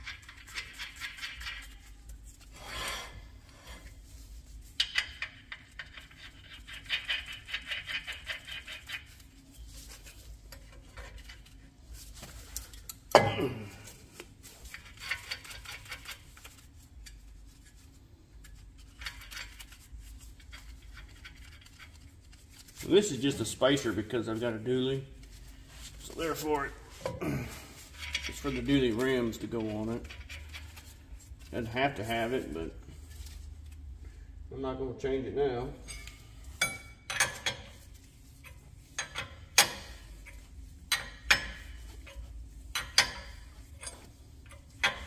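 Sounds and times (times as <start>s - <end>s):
rapid metal clicking of hand tools: 4.8s - 9.2s.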